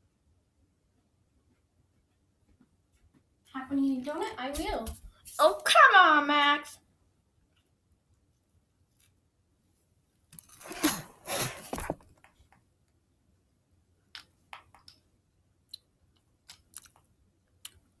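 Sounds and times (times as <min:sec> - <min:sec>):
camera handling rustling and scraping: 0:10.4 - 0:12.2.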